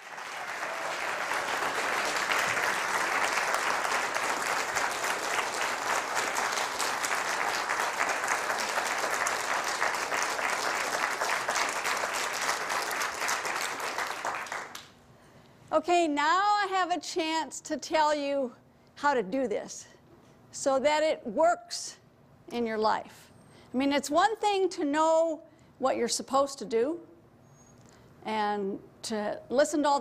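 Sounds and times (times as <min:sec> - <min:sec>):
audience applauding: 0:00.0 - 0:14.9.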